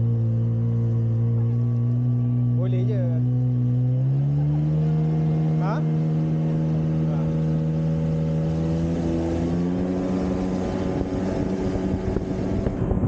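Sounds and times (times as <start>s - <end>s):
jet ski engine running: 0.0s - 13.0s
rushing water and wind: 4.8s - 13.0s.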